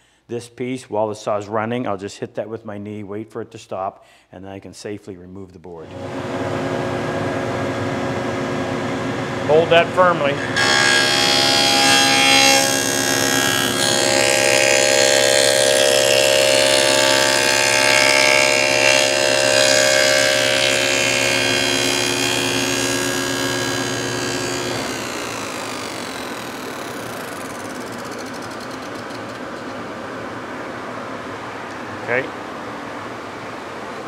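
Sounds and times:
table saw cutting wood: 0:05.8 - 0:29.9
saw blades winding down: 0:09.5 - 0:29.8.

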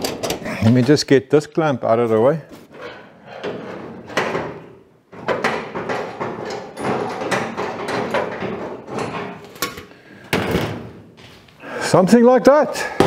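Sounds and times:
metal clamp scraping and clanking: 0:02.6 - 0:04.5.

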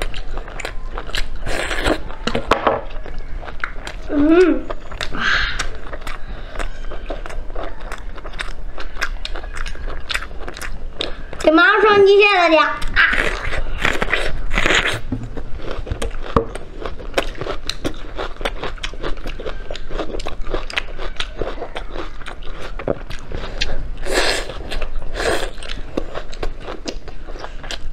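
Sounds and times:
chewing and gnawing: 0:00.0 - 0:12.0, 0:12.7 - 0:27.9
small mouth clicks: 0:03.6 - 0:07.4
crunching bites of raw onion: 0:12.8 - 0:27.8.

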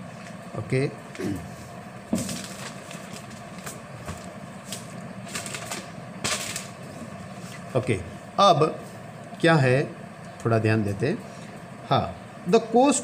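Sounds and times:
steady low hum: 0:00.0 - 0:13.0
paper rustling on a desk: 0:02.1 - 0:07.7.

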